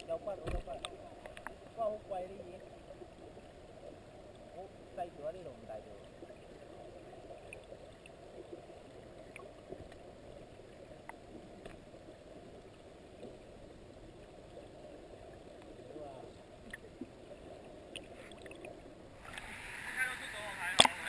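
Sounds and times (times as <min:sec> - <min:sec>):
faint underwater clicks: 0:00.0 - 0:01.8, 0:06.0 - 0:21.0
underwater low rushing: 0:00.0 - 0:21.0.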